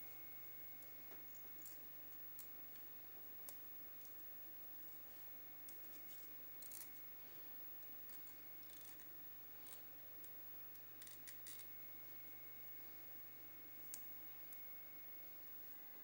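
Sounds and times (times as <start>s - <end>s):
low steady hum: 0.0s - 16.0s
faint crisp clicks and crackles: 0.1s - 12.4s, 13.4s - 14.7s.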